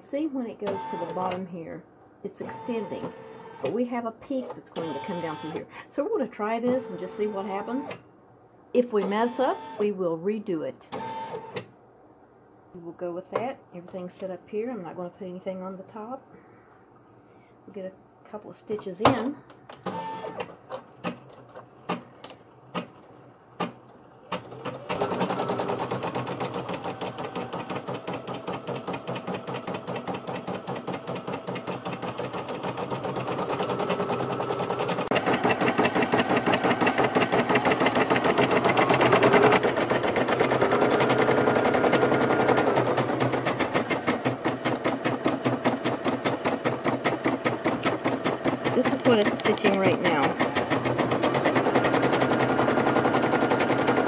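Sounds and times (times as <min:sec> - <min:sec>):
embroidery machine stitching: 0:00.6 - 0:01.4, 0:04.8 - 0:05.6, 0:23.6 - 0:54.0
machine clicks: 0:43.4 - 0:54.0.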